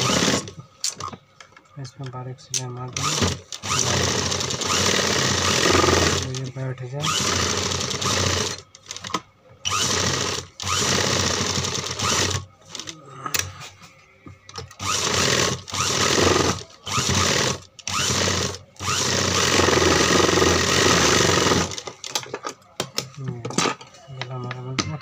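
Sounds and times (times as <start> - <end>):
sewing machine stitching: 0.0 - 0.5, 3.0 - 6.4, 7.0 - 12.8, 14.8 - 21.8.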